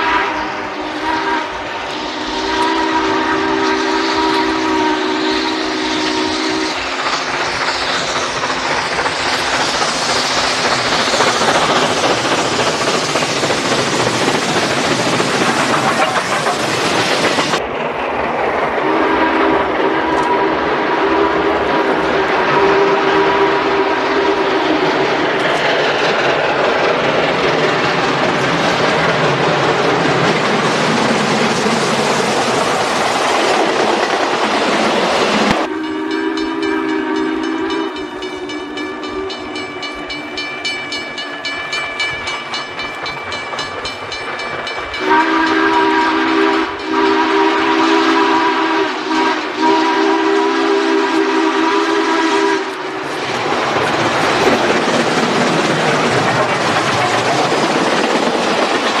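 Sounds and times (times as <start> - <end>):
steam whistle blasts: 0.0 - 7.0, 18.8 - 24.9, 35.5 - 40.6, 45.0 - 53.0
steam train running: 0.0 - 59.0.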